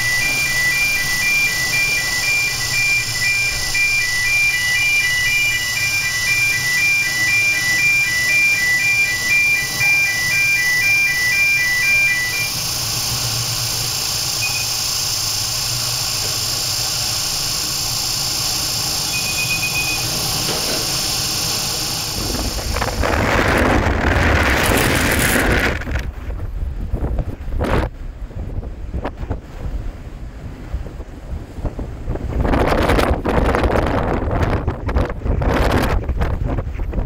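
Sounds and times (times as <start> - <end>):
short high electronic beeps: 0.0 - 12.6, 14.4 - 15.0, 19.0 - 20.2
wind gusting on microphone: 12.4 - 37.0.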